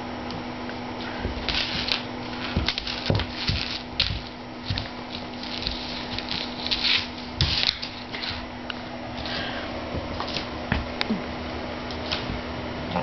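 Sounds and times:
steady low hum: 0.0 - 13.0
paws knocking on floor: 1.2 - 6.8
claws scratching on wooden floor: 1.3 - 8.5.

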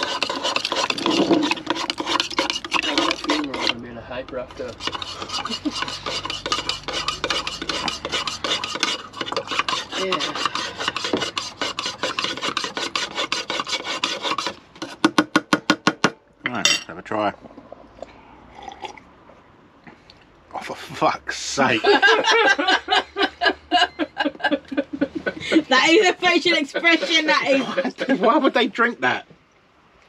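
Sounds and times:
spoon stirring in a cup: 0.0 - 15.0.

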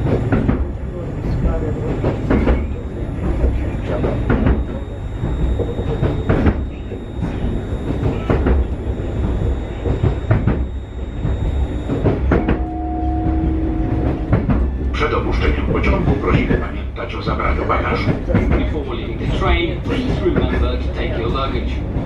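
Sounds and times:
train interior rumble: 0.0 - 22.0
two-note tone: 3.6 - 15.0.

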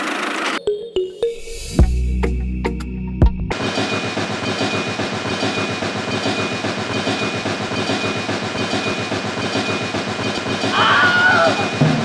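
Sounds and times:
train clickety-clack on track: 3.5 - 12.0.

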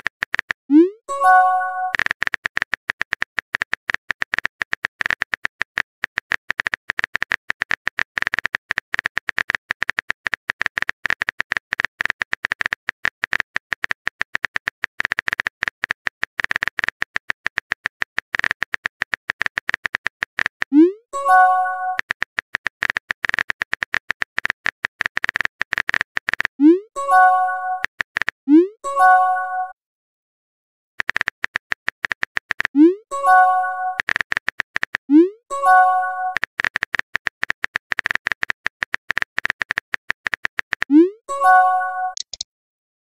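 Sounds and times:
phone keyboard tapping clicks: 31.0 - 32.8, 42.1 - 42.4.

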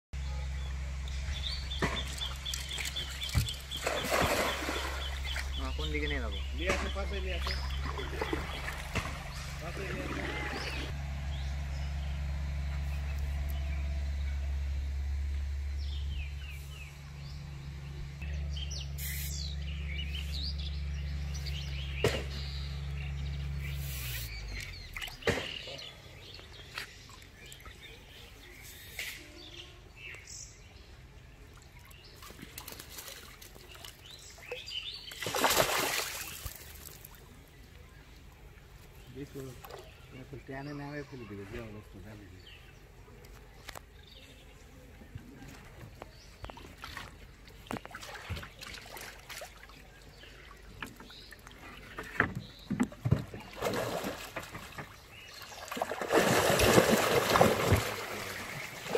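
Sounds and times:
birds chirping: 0.2 - 58.9
fish splashing in water: 1.8 - 5.6, 6.7 - 10.9, 31.6 - 37.5, 46.5 - 52.0, 53.0 - 58.9.

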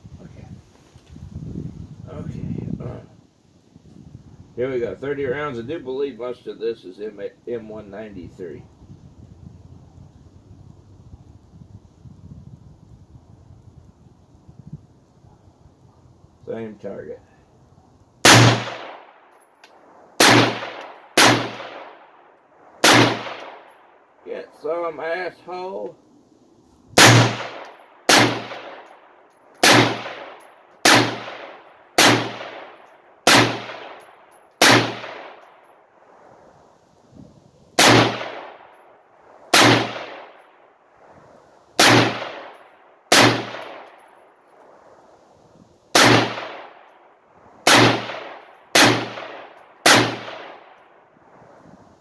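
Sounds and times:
rifle shots with echo: 18.2 - 19.4, 20.2 - 23.9, 27.0 - 35.6, 37.8 - 38.8, 39.5 - 40.4, 41.8 - 44.2, 45.9 - 46.9, 47.6 - 50.8.

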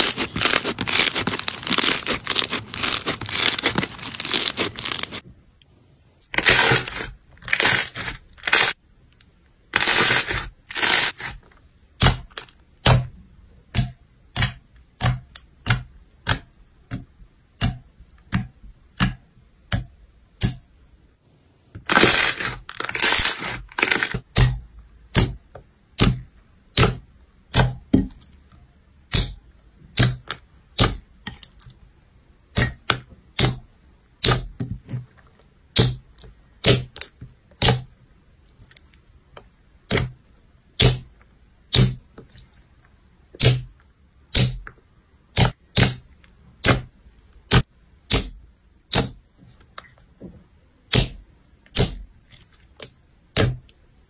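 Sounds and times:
slime squishing: 0.0 - 5.2, 6.2 - 8.8, 9.7 - 13.1, 21.8 - 24.2.

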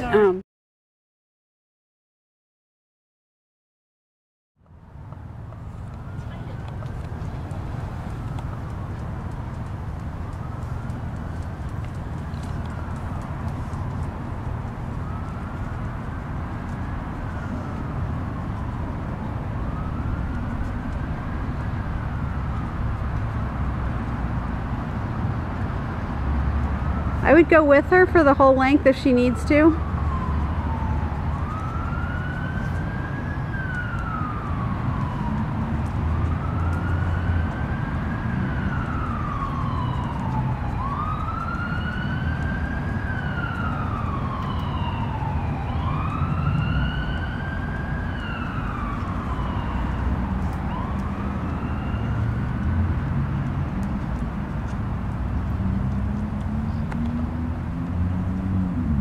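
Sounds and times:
siren wailing: 5.8 - 25.0, 26.1 - 53.4.

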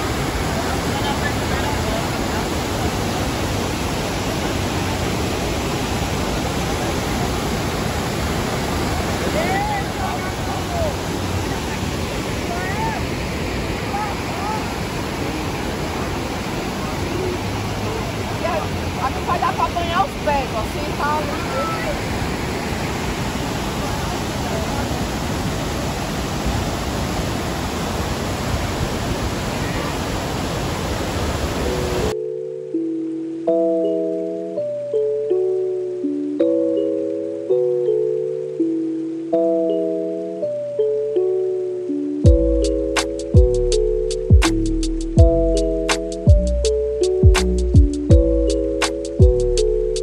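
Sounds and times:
waterfall rushing: 0.0 - 32.2.

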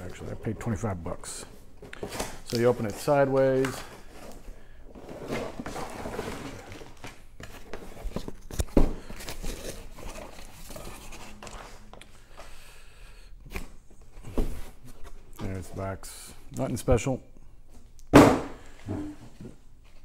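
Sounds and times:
cardboard and paper rustling: 1.8 - 11.9.

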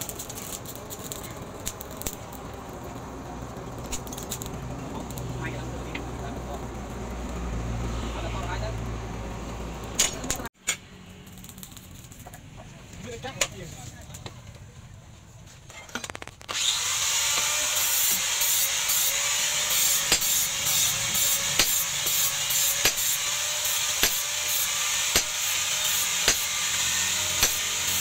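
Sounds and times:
hammer striking chisel on steel: 19.8 - 26.6, 27.3 - 28.0.

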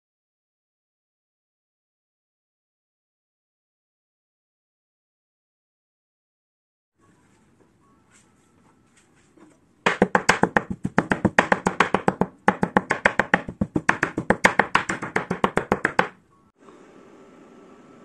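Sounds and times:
cleaver chopping on cutting board: 9.9 - 16.1.

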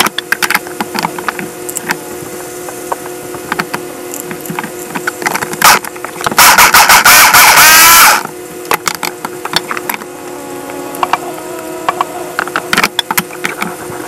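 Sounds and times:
food processor motor whining: 9.7 - 14.0.

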